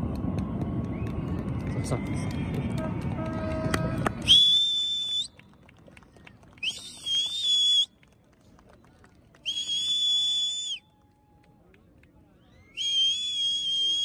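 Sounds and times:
shrill whistles: 0:04.2 - 0:05.3, 0:06.6 - 0:07.9, 0:09.4 - 0:10.8, 0:12.4 - 0:14.0.

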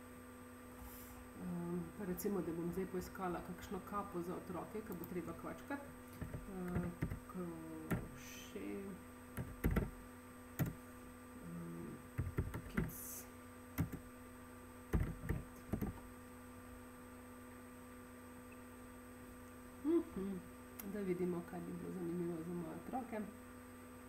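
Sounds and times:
computer keyboard keys clicking: 0:06.2 - 0:07.2, 0:09.4 - 0:09.9, 0:12.2 - 0:12.9, 0:13.8 - 0:14.0, 0:15.0 - 0:16.0.

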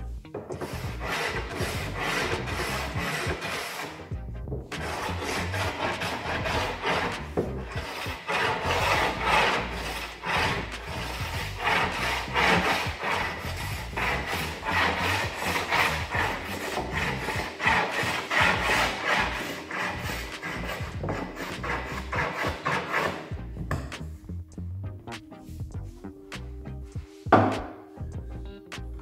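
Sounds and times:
hand tool rasping wood edge: 0:00.4 - 0:04.0, 0:04.8 - 0:23.3.

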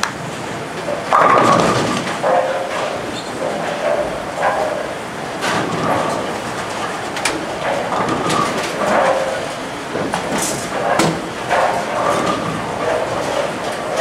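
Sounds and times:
bowling pins clattering: 0:00.2 - 0:14.0.

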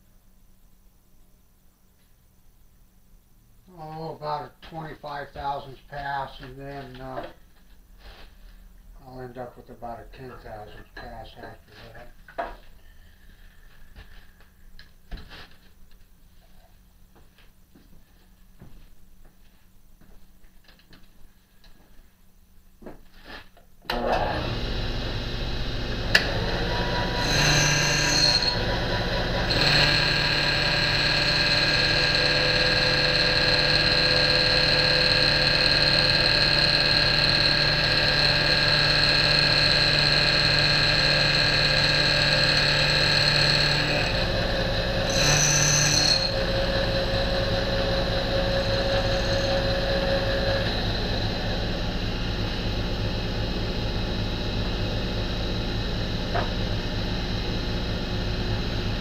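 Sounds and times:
end mill cutting metal: 0:23.9 - 0:58.9
milling machine motor running: 0:23.9 - 0:59.0.

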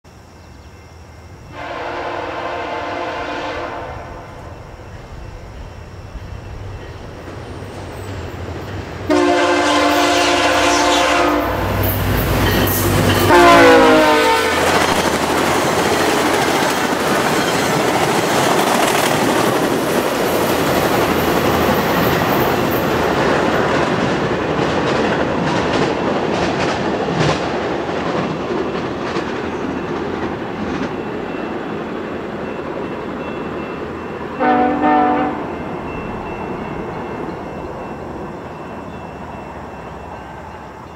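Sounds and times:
train coaches rumbling and clattering: 0:00.1 - 0:40.9
train horn blasts: 0:01.5 - 0:04.6, 0:09.1 - 0:12.1, 0:12.7 - 0:15.1, 0:34.4 - 0:35.7.

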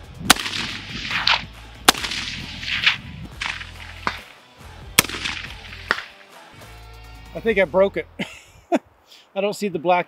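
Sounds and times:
rifle shots: 0:00.3 - 0:04.3, 0:05.0 - 0:06.2.

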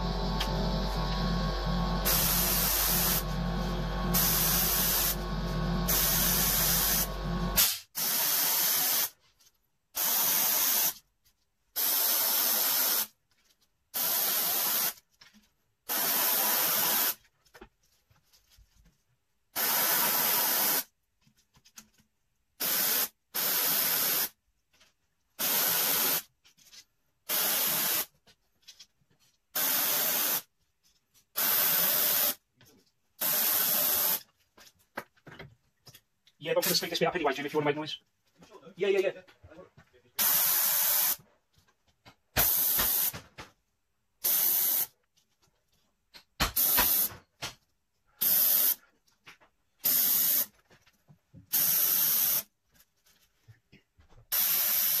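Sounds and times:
low hum: 0:00.0 - 0:07.6
airbrush hissing bursts: 0:00.0 - 0:09.1, 0:33.2 - 0:34.2, 0:40.2 - 0:41.2, 0:44.2 - 0:44.9, 0:48.2 - 0:48.8, 0:54.3 - 0:55.0.

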